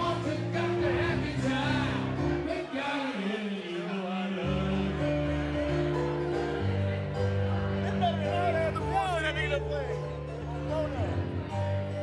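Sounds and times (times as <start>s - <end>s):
grand piano chords: 0.0s - 2.8s, 4.4s - 12.0s
man singing: 0.0s - 5.9s.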